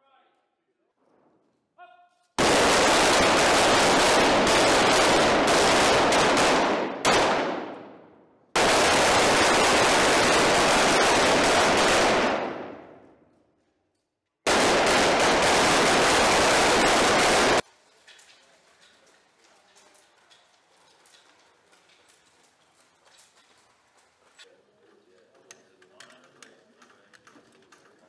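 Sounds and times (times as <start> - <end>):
rifles firing fast volleys: 2.4 - 13.0, 14.5 - 17.6.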